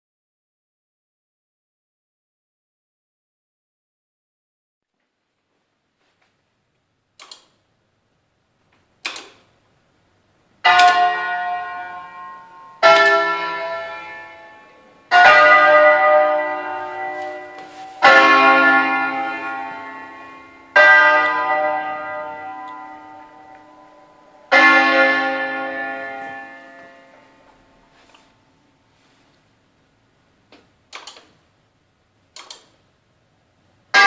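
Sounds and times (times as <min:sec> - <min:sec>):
church bells ringing: 0:10.6 - 0:28.1.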